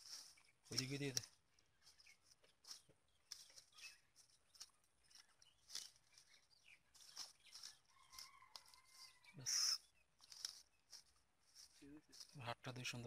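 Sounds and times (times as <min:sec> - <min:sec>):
faint bird chirp: 0:00.0 - 0:13.0
rustling of wet weeds and mud: 0:00.0 - 0:13.0.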